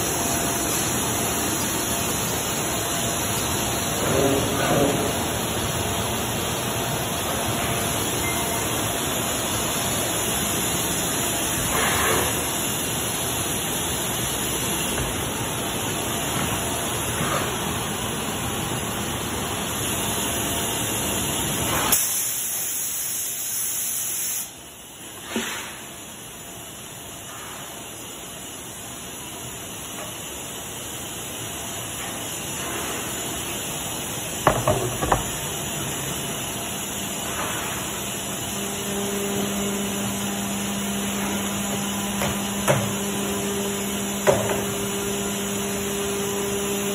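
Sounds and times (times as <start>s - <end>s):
rushing hiss of air: 21.7s - 24.6s.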